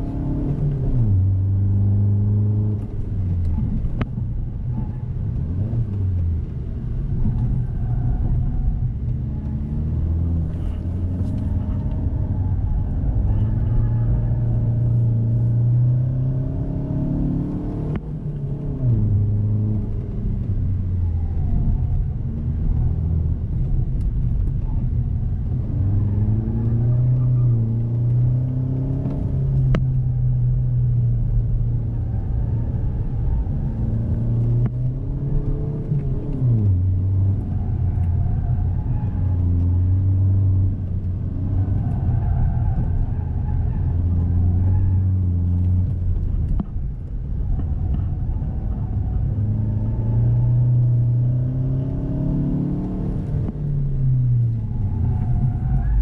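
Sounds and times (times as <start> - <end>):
car engine from inside cabin: 0.0 - 56.0.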